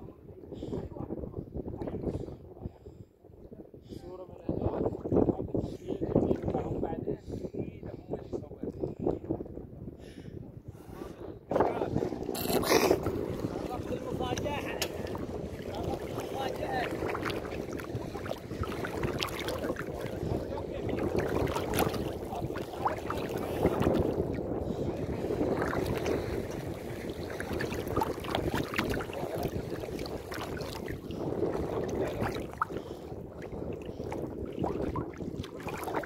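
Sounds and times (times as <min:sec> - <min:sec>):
wind on microphone: 0:00.0 - 0:36.0
seawater sloshing and splashing: 0:11.6 - 0:36.0.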